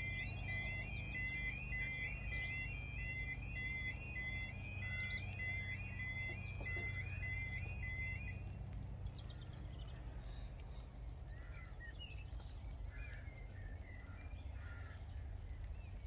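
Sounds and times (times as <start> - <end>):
level crossing warning alarm: 0.0 - 8.7
birds calling: 0.0 - 16.0
low steady hum: 0.0 - 16.0.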